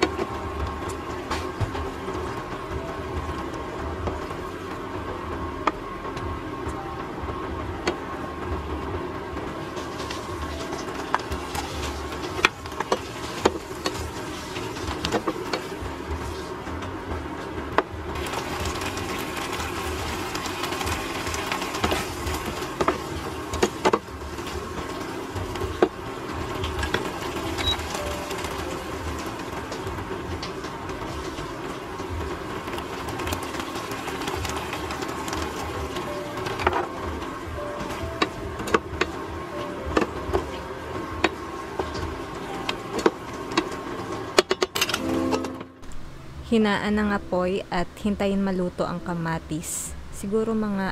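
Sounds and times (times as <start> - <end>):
sauce bubbling in a pan: 18.0 - 28.0.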